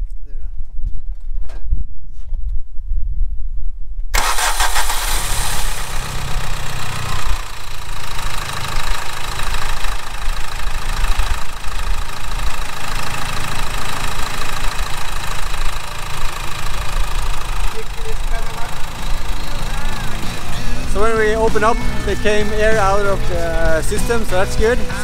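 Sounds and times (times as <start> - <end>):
diesel engine idling: 4.2 - 25.0.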